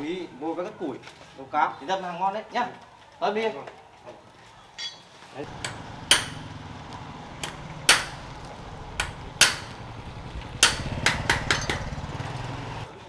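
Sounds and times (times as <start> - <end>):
hammer blows: 5.5 - 6.6, 7.2 - 9.8, 10.4 - 12.1.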